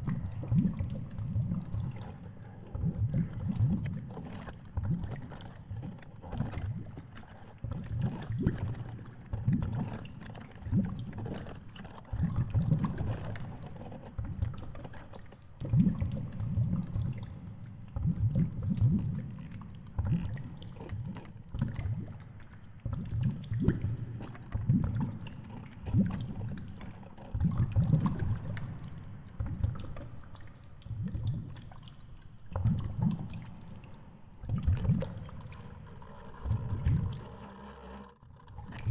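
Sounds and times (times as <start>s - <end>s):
underwater water rumbling: 0.0s - 38.9s.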